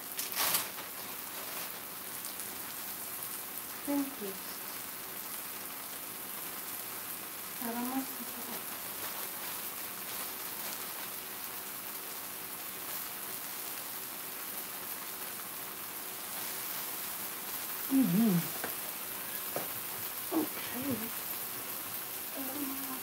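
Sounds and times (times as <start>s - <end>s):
food sizzling in oil: 0.0s - 23.0s
brief vocal sound: 17.9s - 18.5s.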